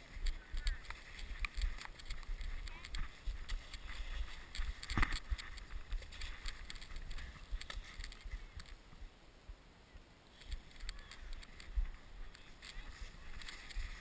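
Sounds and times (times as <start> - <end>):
sled crunching and scraping on snow: 0.0 - 9.0, 10.3 - 14.0.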